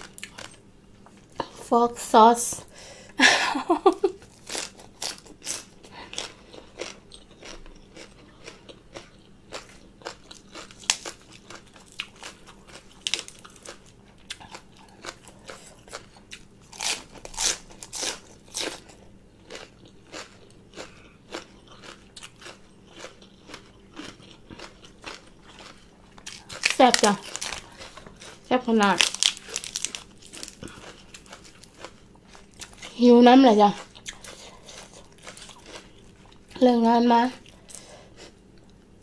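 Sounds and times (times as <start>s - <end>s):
chewing and crunching food: 0.0s - 1.7s, 4.0s - 39.0s
crisp lettuce crunches: 21.3s - 33.0s.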